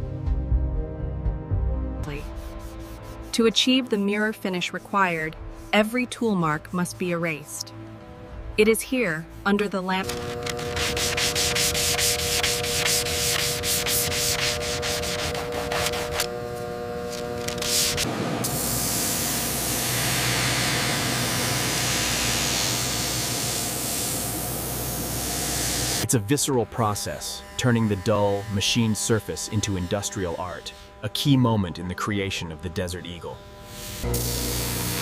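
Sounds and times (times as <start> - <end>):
sandpaper rubbing on steel: 2.2 - 3.4, 10.1 - 16.3, 17.1 - 19.2
grinding wheel hissing on steel: 10.4 - 26.0.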